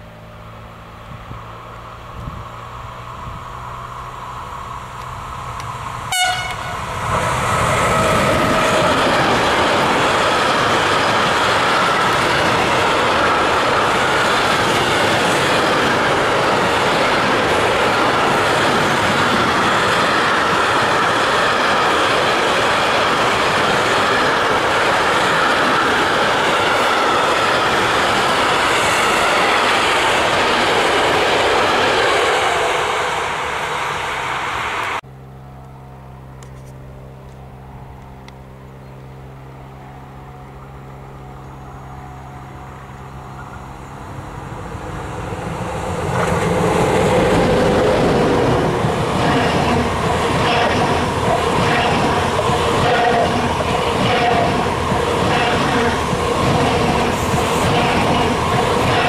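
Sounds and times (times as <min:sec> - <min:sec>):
train horn toot: 0:06.1 - 0:06.9, 0:52.8 - 0:56.0
freight wagons rumbling by: 0:39.9 - 0:59.0.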